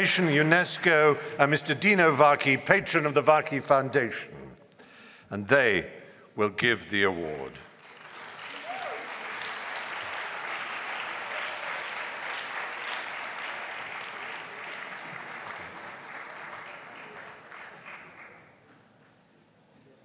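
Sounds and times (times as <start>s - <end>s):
audience applauding: 7.7s - 19.2s.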